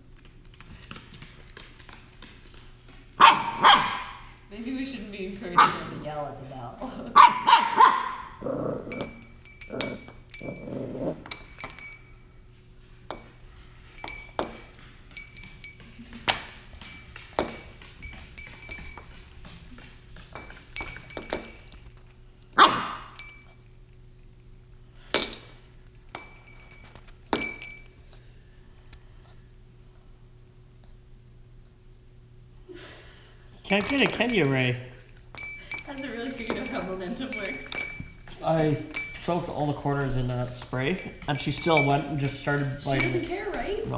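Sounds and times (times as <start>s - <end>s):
puppy barking: 3.2s - 4.3s, 5.6s - 5.9s, 7.2s - 8.4s, 22.6s - 23.1s
puppy growling: 8.2s - 9.0s, 9.7s - 11.3s
small bell clinking: 8.9s - 12.4s, 13.9s - 19.6s, 20.4s - 21.9s, 23.1s - 23.7s, 26.1s - 28.0s, 33.6s - 39.8s, 40.6s - 43.9s.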